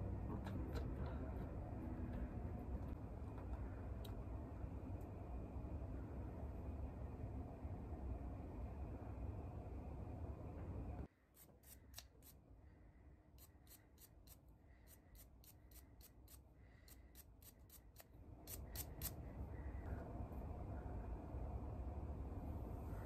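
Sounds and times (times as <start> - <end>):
low steady rumble: 0.0 - 11.1, 19.1 - 23.0.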